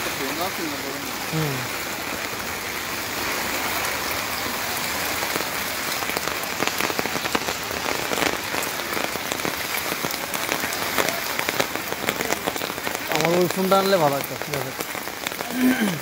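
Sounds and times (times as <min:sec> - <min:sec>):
heavy rain: 0:00.0 - 0:16.0
raindrops ticking near microphone: 0:00.0 - 0:16.0.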